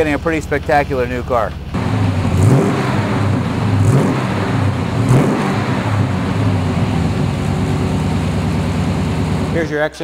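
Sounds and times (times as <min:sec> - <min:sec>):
car exhaust revving and idling: 0:00.0 - 0:09.9.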